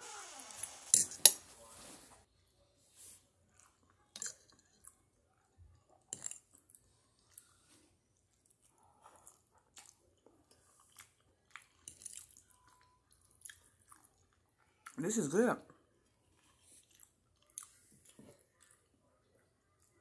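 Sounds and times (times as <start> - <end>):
wet chewing and lip smacks: 8.3 - 15.0, 16.4 - 18.9.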